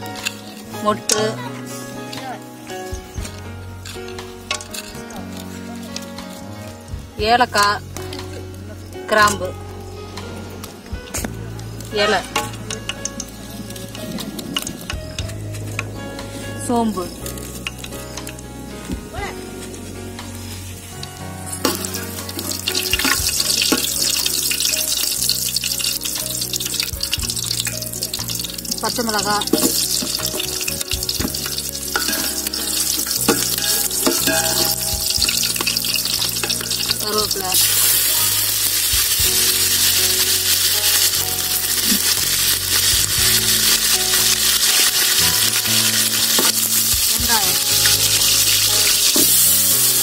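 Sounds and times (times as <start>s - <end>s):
soft background music: 0.0s - 50.0s
spices sizzling in hot oil: 0.0s - 50.0s
ladle stirring in pot: 21.6s - 50.0s.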